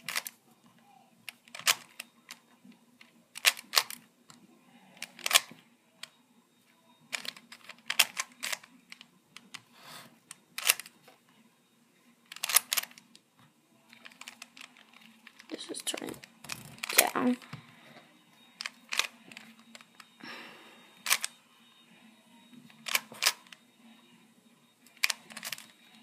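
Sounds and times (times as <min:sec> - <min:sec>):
faint steady hum: 0:00.0 - 0:26.0
puzzle cube clicking: 0:01.3 - 0:02.4, 0:03.0 - 0:04.1, 0:05.0 - 0:06.1, 0:07.1 - 0:09.7, 0:10.3 - 0:10.9, 0:12.3 - 0:13.2, 0:13.9 - 0:17.4, 0:18.6 - 0:20.0, 0:21.0 - 0:21.3, 0:22.8 - 0:23.6, 0:24.9 - 0:25.7.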